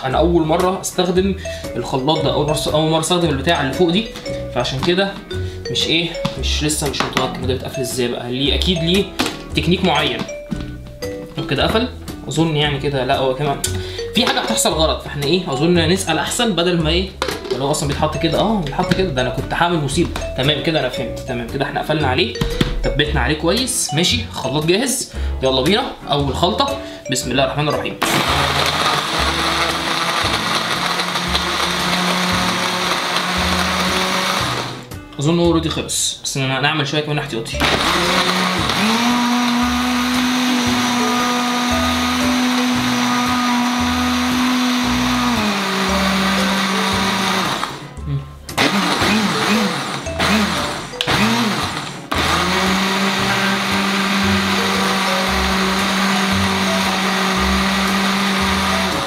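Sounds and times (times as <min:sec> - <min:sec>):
blender motor running: 0:28.0 - 0:34.9, 0:37.6 - 0:48.0, 0:48.6 - 0:59.0.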